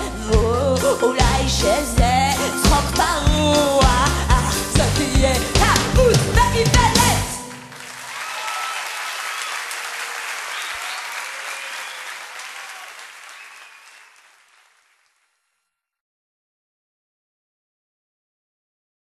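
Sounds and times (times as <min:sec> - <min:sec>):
song ending: 0:00.0 - 0:07.8
crowd applauding and cheering: 0:06.9 - 0:15.2.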